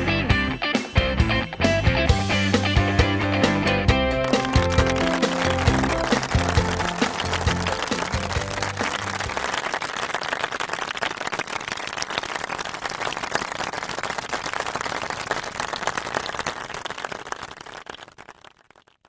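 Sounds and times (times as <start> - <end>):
crowd clapping: 4.2 - 19.0.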